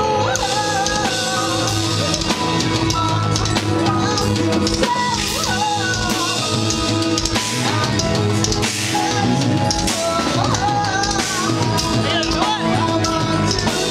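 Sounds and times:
electric guitars: 0:00.0 - 0:13.9
pounding drum kit: 0:00.0 - 0:13.9.

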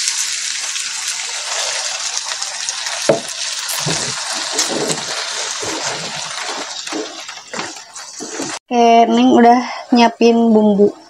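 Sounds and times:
food sizzling in a wok: 0:00.0 - 0:08.6
spatula scraping food: 0:03.7 - 0:08.6.

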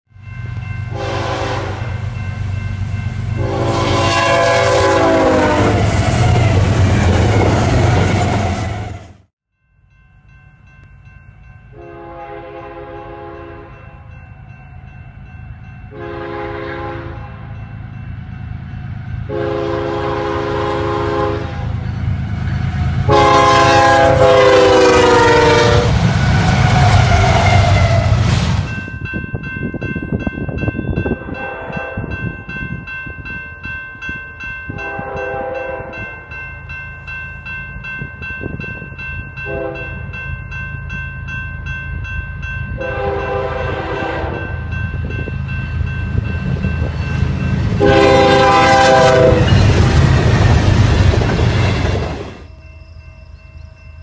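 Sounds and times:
freight train rumble: 0:00.1 - 0:09.3, 0:10.0 - 0:54.0
locomotive horn blasts: 0:00.9 - 0:02.0, 0:03.4 - 0:06.5, 0:11.8 - 0:13.9, 0:15.9 - 0:17.6, 0:19.2 - 0:28.2, 0:31.2 - 0:32.1, 0:34.7 - 0:36.1, 0:39.4 - 0:40.0, 0:42.8 - 0:44.5, 0:47.8 - 0:49.6.

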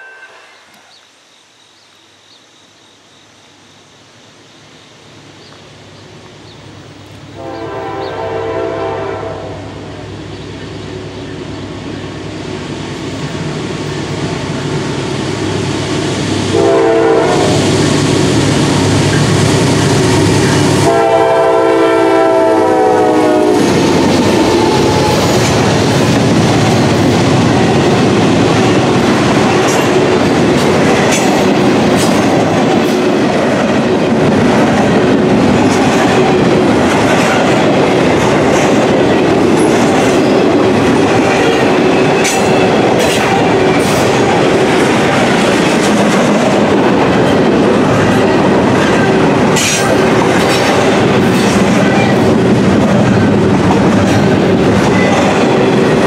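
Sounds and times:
train rumble: 0:03.9 - 0:56.0
locomotive horn blasts: 0:07.4 - 0:09.8, 0:16.5 - 0:17.6, 0:20.8 - 0:25.3
clickety-clack of rail cars: 0:12.9 - 0:56.0.

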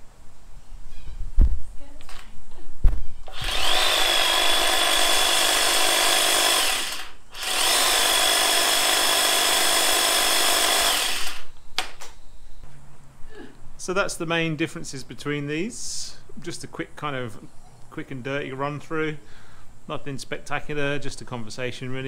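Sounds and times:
hedge trimmer whining: 0:03.2 - 0:11.6.

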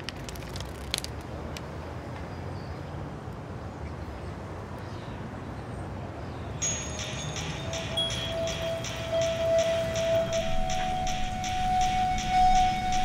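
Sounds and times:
newspaper pages crackling: 0:00.0 - 0:01.5
low traffic rumble: 0:00.0 - 0:13.0
music: 0:06.6 - 0:13.0.

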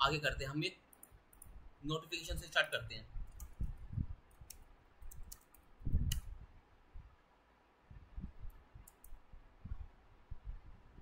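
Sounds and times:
keyboard keys clicking: 0:04.3 - 0:06.2.

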